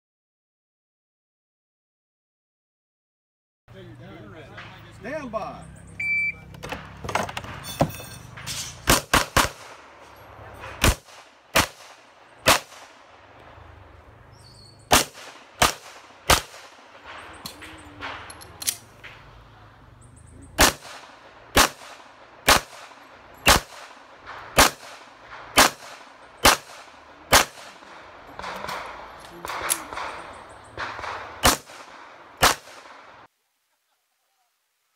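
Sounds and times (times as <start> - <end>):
handgun shots with echo: 8.8 - 9.9, 14.9 - 19.3, 20.6 - 33.1.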